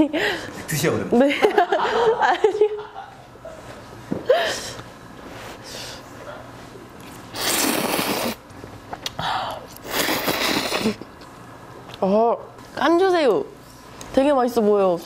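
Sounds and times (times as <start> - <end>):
noodles slurped loudly: 7.3 - 8.4, 9.8 - 11.0.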